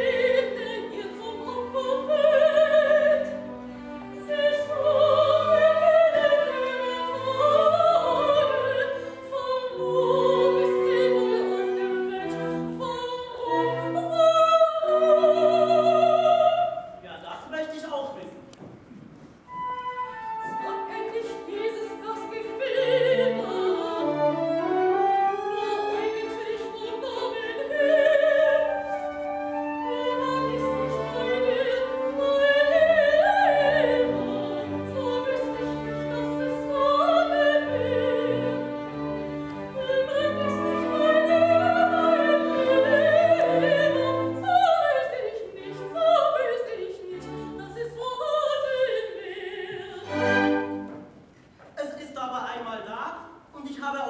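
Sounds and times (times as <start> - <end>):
operatic singing with vibrato: 0.0 - 18.4, 19.5 - 51.2
orchestra playing: 19.5 - 44.8, 50.0 - 51.2.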